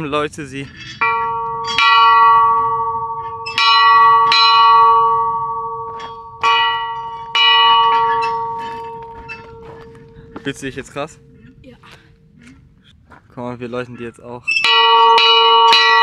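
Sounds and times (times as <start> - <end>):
hand bell ringing: 1.0 - 10.1.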